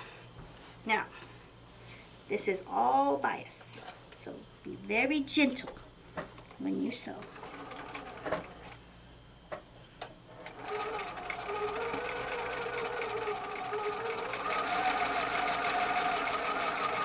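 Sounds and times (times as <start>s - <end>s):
sewing machine running: 7.2s - 8.8s, 10.3s - 17.0s.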